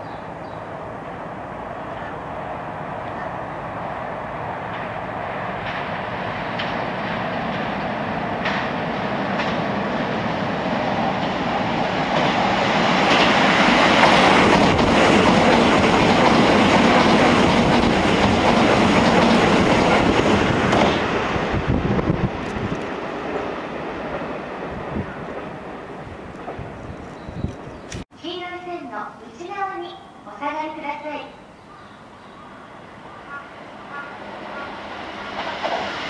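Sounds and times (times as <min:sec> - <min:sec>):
train wheels clacking on rails: 0:04.6 - 0:24.4, 0:33.3 - 0:36.0.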